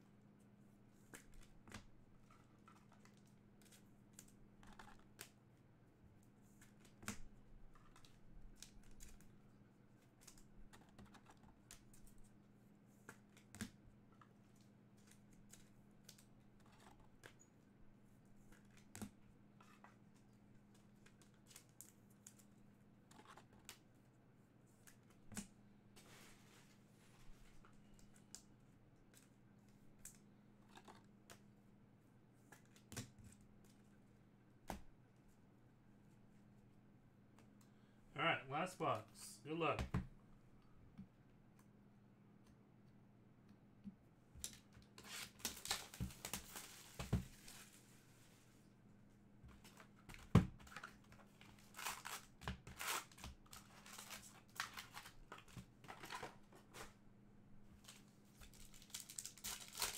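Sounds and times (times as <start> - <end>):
card packs handled and opened: 44.4 - 47.8, 49.5 - 57.0, 57.8 - 59.9.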